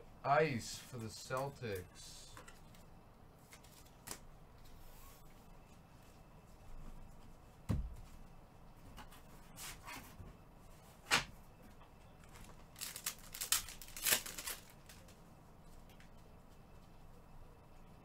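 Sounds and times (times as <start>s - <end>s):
dull thump: 7.7s - 8.0s
card wrappers crinkling and tearing: 12.3s - 15.1s.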